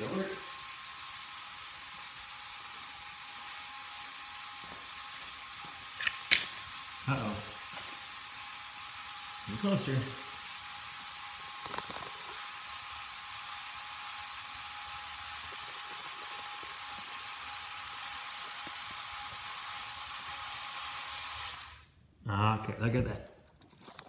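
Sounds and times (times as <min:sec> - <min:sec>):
robot motors whirring: 0:00.0 - 0:21.9.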